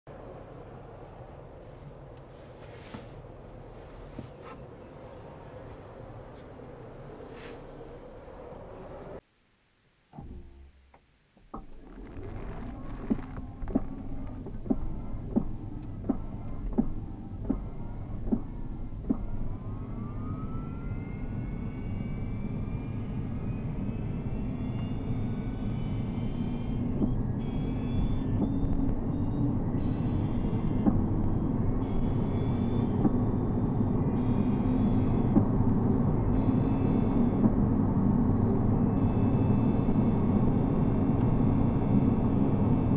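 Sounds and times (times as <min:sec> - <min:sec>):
car rumble: 0:10.1 - 0:42.9
electric motor whine: 0:11.6 - 0:42.9.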